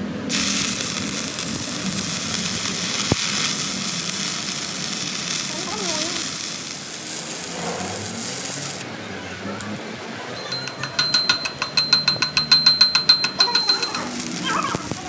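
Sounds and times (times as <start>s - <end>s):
arc welding crackle and hiss: 0.0s - 8.9s, 12.9s - 15.0s
hammer striking ringing steel: 10.4s - 14.4s.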